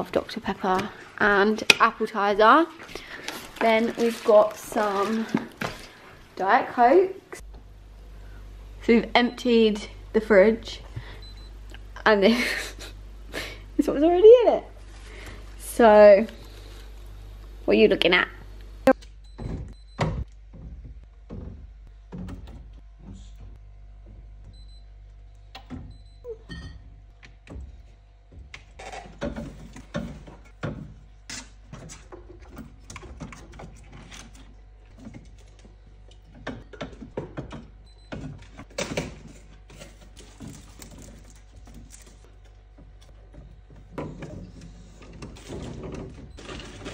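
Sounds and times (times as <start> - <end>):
steady low hum: 0.0 - 46.9
bottles and cans knocking on shelves: 36.2 - 39.7.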